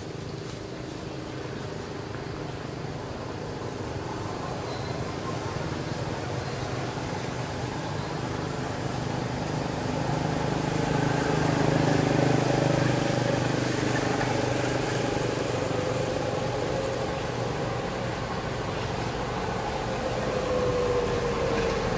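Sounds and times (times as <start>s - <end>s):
vehicle engine passing by: 6.2s - 21.9s.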